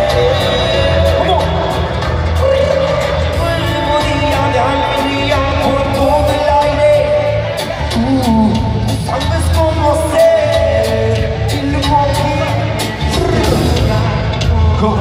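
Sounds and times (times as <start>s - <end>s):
live band music: 0.0s - 15.0s
person singing: 0.0s - 15.0s.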